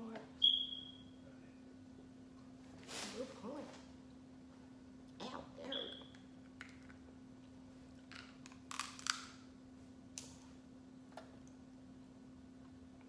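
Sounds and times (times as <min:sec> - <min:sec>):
faint steady hum: 0:00.0 - 0:13.0
crab shell cracking: 0:08.1 - 0:09.4.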